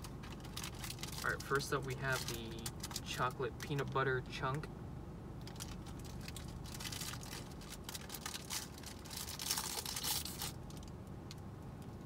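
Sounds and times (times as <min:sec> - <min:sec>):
foil wrapper tearing and crinkling: 0:00.0 - 0:03.7, 0:05.5 - 0:10.9.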